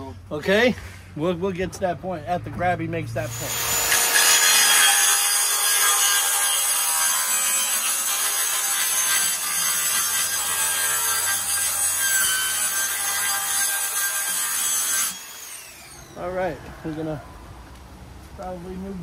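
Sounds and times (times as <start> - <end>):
circular saw cutting plastic: 3.3 - 16.2.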